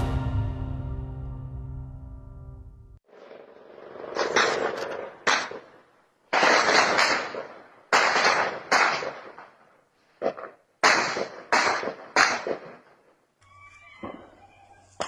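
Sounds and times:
gunshots with echo: 3.1s - 9.6s, 10.2s - 13.0s.

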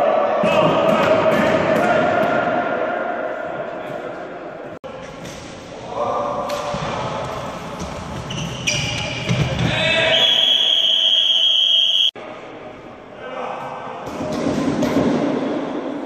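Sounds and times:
shoe squeaks: 8.2s - 9.4s
people shouting: 9.6s - 10.6s.

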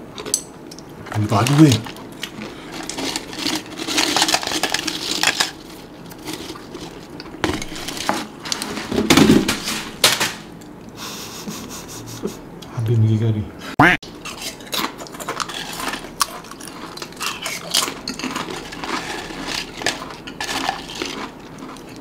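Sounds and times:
crisps rattling in a canister: 1.1s - 2.0s, 2.7s - 9.8s
crisps clattering out: 2.7s - 10.5s, 14.8s - 21.8s.

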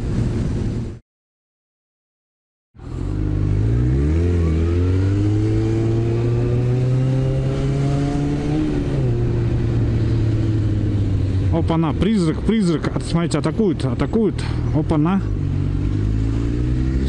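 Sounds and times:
motorcycle engine revving: 2.8s - 11.8s, 14.0s - 17.0s.

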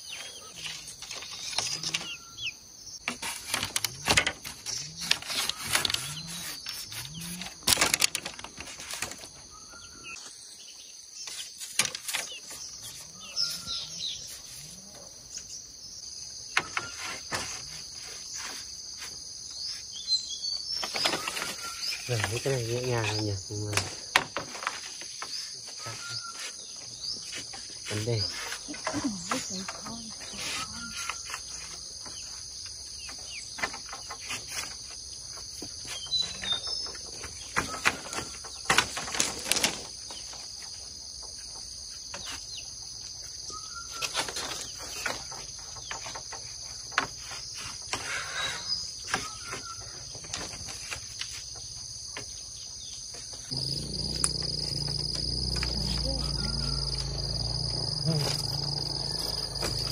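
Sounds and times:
high insect chorus: 0.0s - 59.9s
bamboo poles knocking and rustling: 3.0s - 9.5s, 11.2s - 13.0s, 16.5s - 19.3s, 20.7s - 26.0s, 31.0s - 42.5s, 44.0s - 48.2s, 49.0s - 52.4s.

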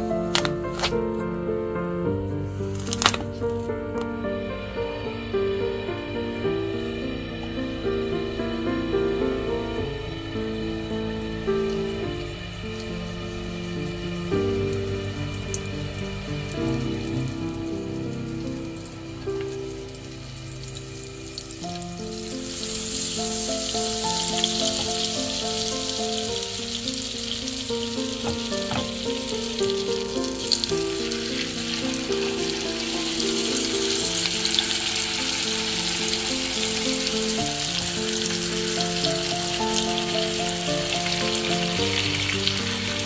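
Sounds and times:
chicken frying in hot fat: 11.6s - 43.0s
butter and oil sizzling in a pan: 12.7s - 43.0s.

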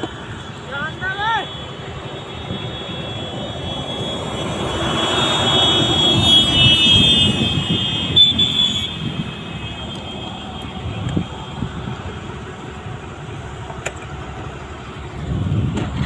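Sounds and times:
truck engine and tyre noise: 0.0s - 16.0s.

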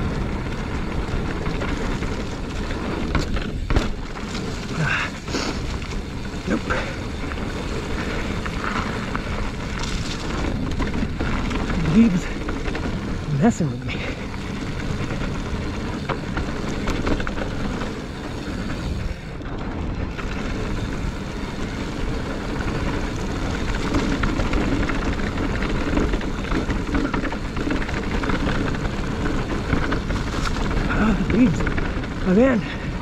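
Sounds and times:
bike clicks and rattles: 0.0s - 33.0s
tyres rolling on dirt: 0.0s - 33.0s.

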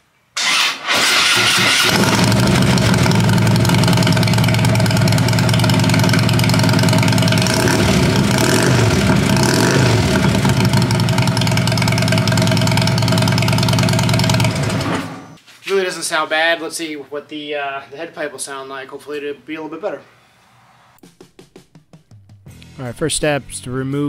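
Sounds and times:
electric starter cranking: 0.4s - 15.3s
motorcycle engine idling and revving: 0.9s - 15.4s.

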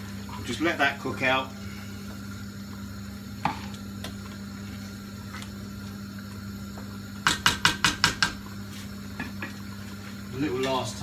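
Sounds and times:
steady low hum: 0.0s - 11.0s
spoon knocking against pot: 7.2s - 8.4s.

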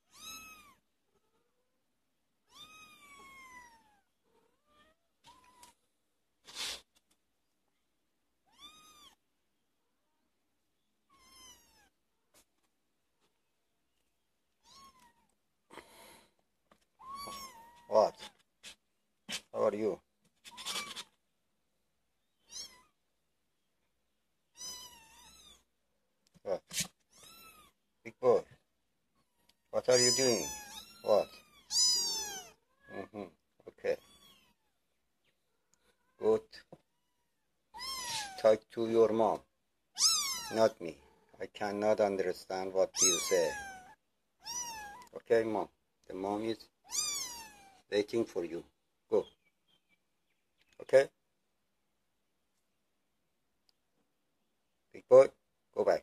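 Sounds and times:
kittens mewing: 17.0s - 18.4s, 29.3s - 33.4s, 37.8s - 38.5s, 40.0s - 40.7s, 42.9s - 45.1s, 46.9s - 47.8s.

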